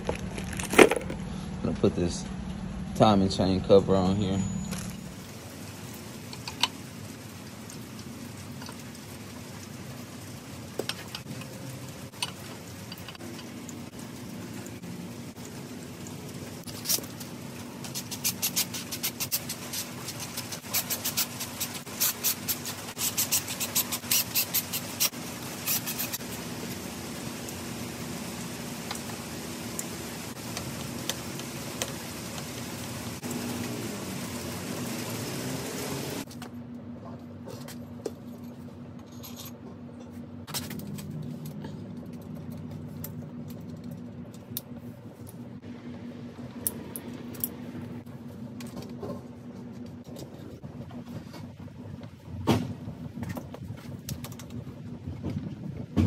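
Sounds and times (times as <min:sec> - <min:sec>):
steady low hum: 0:00.0 - 0:06.3.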